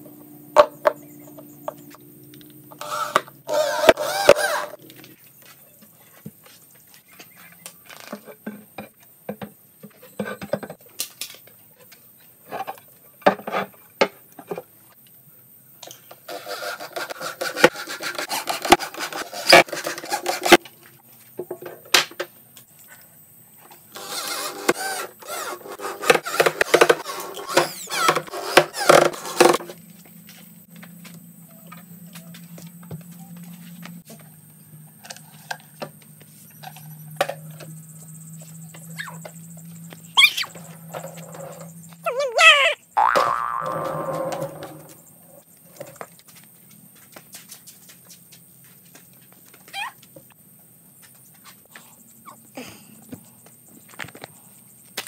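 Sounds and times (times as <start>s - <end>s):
scraping and rubbing: 16.3s - 20.6s, 24.0s - 29.8s.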